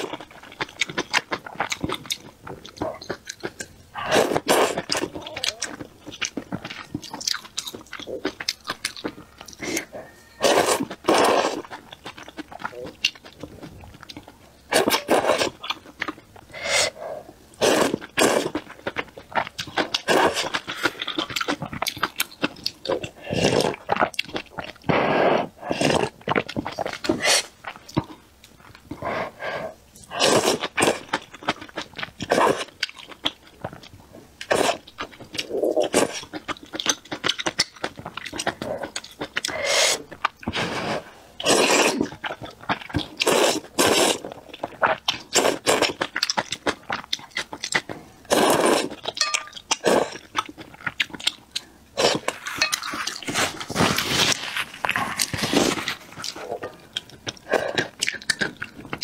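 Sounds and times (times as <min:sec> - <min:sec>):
quiet chewing: 0:00.0 - 0:59.0
loud slurping of noodles: 0:17.6 - 0:18.5, 0:40.6 - 0:42.0, 0:43.2 - 0:44.2, 0:48.3 - 0:48.9.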